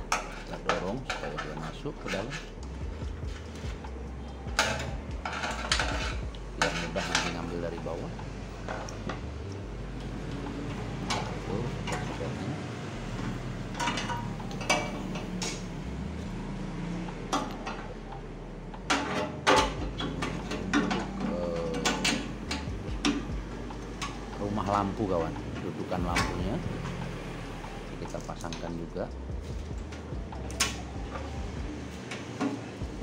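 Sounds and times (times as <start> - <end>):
metal and plastic parts clattering: 4.6 - 7.9.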